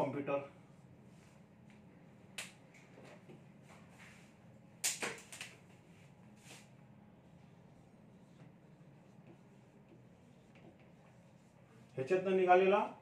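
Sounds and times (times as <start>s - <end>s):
marker clicking on whiteboard: 9.2s - 11.2s.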